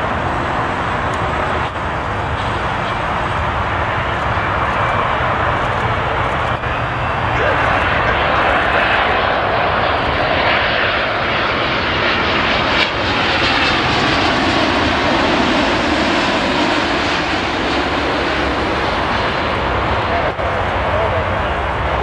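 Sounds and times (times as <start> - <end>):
jet engines passing low: 0.0 - 22.0.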